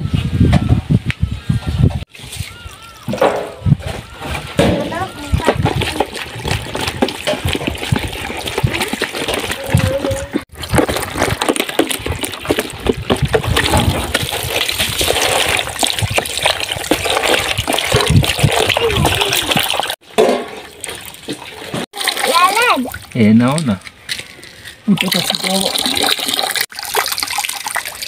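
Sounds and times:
water pouring into container: 0:05.2 - 0:23.4, 0:24.9 - 0:28.0.

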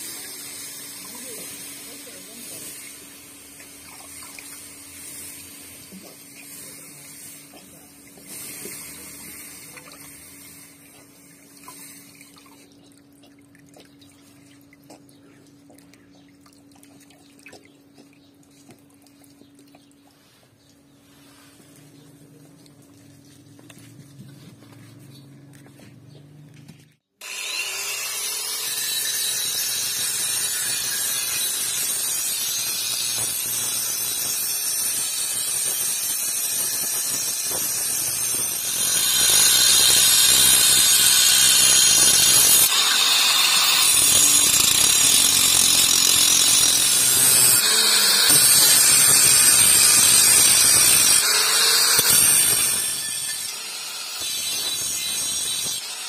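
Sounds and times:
angle grinder grinding steel: 0:27.2 - 0:56.0.

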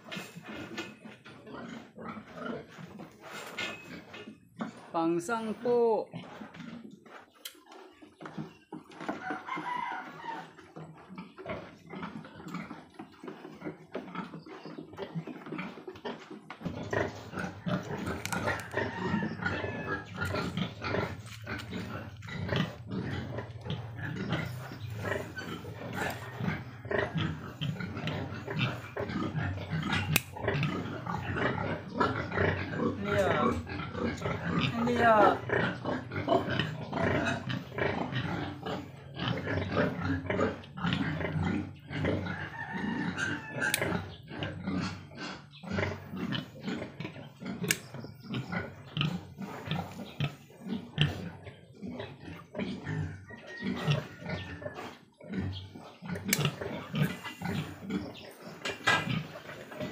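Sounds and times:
piglets grunting and squealing: 0:00.0 - 0:04.9, 0:05.8 - 0:59.9
nippers click: 0:30.1 - 0:30.3
piglet squealing: 0:42.5 - 0:44.1.

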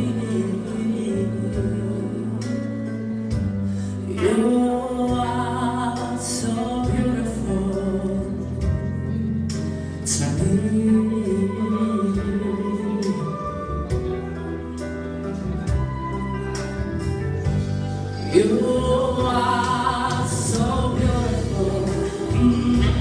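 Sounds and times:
man singing into microphone: 0:00.0 - 0:02.7, 0:10.0 - 0:13.6, 0:18.2 - 0:23.0
instrumental backing track: 0:00.0 - 0:23.0.

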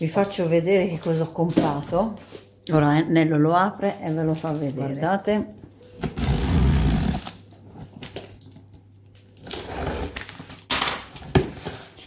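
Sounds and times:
tape ripping off cardboard: 0:06.0 - 0:07.4.

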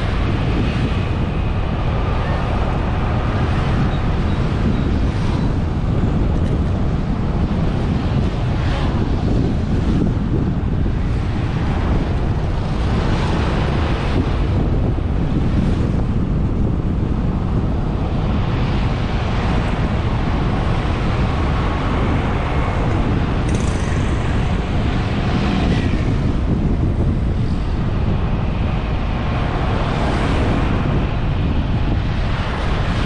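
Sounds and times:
motorbikes and cars passing: 0:00.0 - 0:33.0
wind rumble on microphone: 0:00.0 - 0:33.0.

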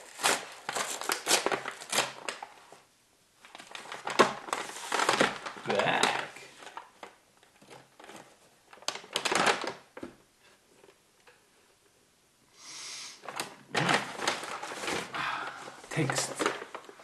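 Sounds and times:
paper bag rustling and crinkling: 0:00.0 - 0:02.8, 0:03.4 - 0:10.0, 0:13.2 - 0:17.0
short soft hiss: 0:12.6 - 0:13.2.

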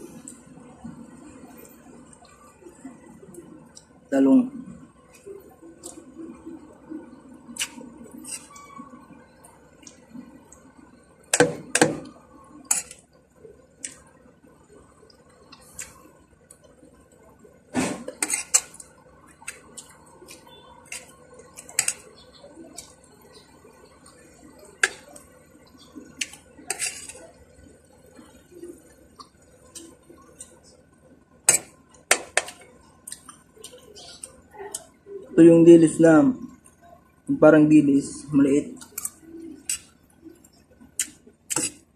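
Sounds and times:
soft chewing: 0:00.0 - 0:11.4, 0:12.0 - 0:35.4, 0:38.7 - 0:41.9
metal spoon scraping a plate: 0:08.2 - 0:08.8, 0:12.6 - 0:13.0, 0:18.0 - 0:18.8, 0:26.7 - 0:27.3, 0:41.5 - 0:41.8.

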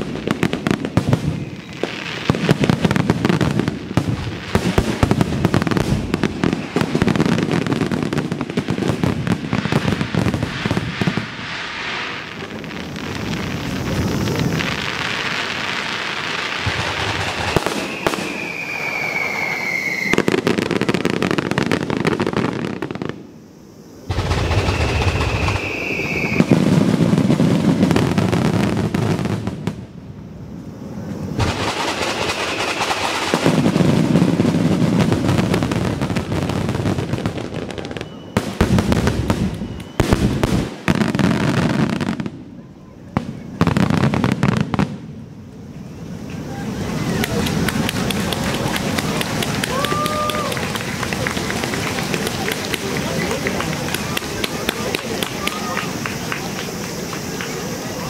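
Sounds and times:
firework shells booming: 0:00.0 - 0:23.2, 0:31.4 - 0:42.5, 0:47.0 - 0:58.0
fast dense firework crackling: 0:00.0 - 0:58.0
falling whistle: 0:17.4 - 0:20.4, 0:24.5 - 0:26.7, 0:32.2 - 0:33.2, 0:37.7 - 0:38.6, 0:39.4 - 0:40.1.

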